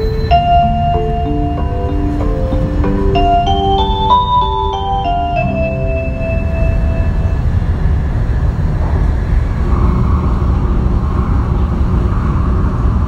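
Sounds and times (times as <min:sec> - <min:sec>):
announcement chime: 0:00.0 - 0:07.6
train rumbling at speed: 0:00.0 - 0:13.0.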